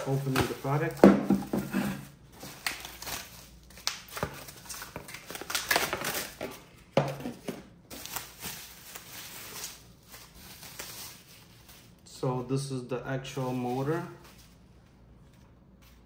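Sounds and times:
bubble wrap crinkling: 0.0s - 12.2s.

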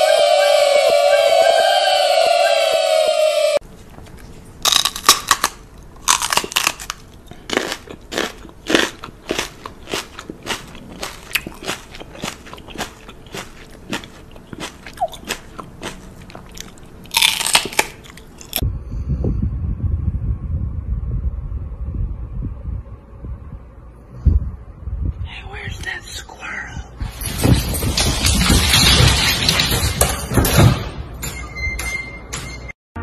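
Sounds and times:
dog chewing and crunching: 4.6s - 18.6s.

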